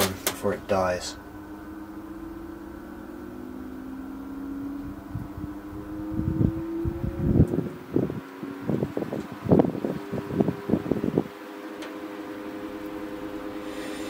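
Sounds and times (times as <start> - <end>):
fan motor hum rising in pitch: 0.0 - 14.0
wind gusts on microphone: 4.7 - 11.4.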